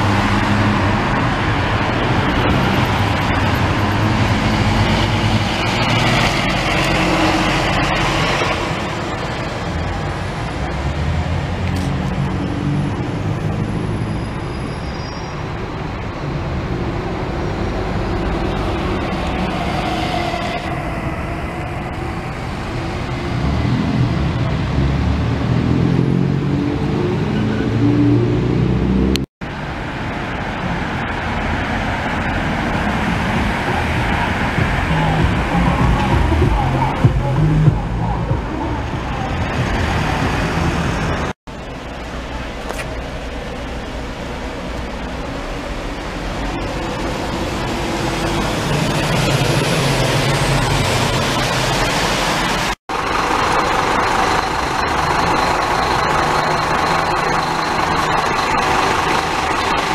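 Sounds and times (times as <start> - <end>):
buses and cars driving past: 0.0 - 59.9
engine drone: 0.0 - 59.9.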